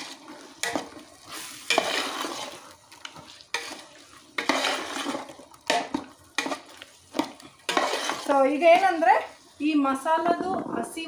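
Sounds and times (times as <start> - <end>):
spoon scraping pot: 0.0 - 9.4
chicken sizzling in oil: 0.0 - 9.7.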